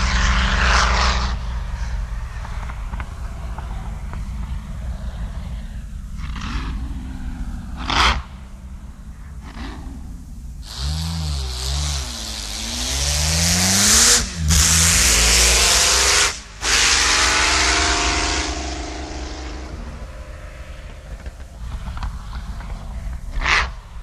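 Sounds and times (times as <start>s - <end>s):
racing car engine revving and accelerating: 0.0s - 4.2s, 10.6s - 22.1s.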